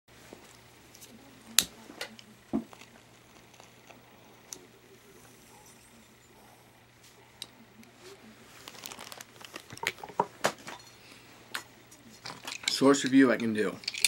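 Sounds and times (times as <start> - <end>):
clothing rustling against microphone: 8.0 - 9.8.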